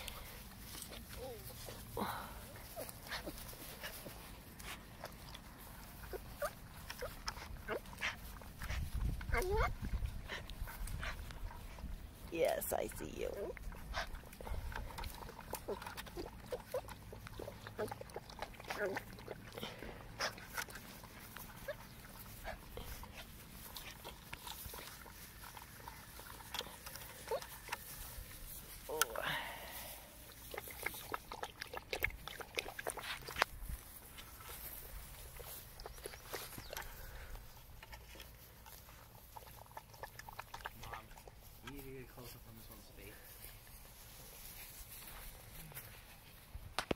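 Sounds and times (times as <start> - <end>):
puppies whimpering and grunting: 0.0 - 12.2, 13.2 - 33.1
water splashing and lapping: 0.0 - 46.9
puppies whimpering: 9.2 - 10.4, 15.2 - 20.1.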